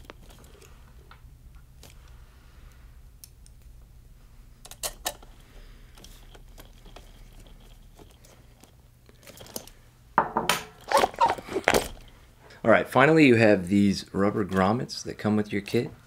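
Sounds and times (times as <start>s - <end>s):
rustling and knocks of parts: 0.0s - 2.2s, 4.6s - 12.2s.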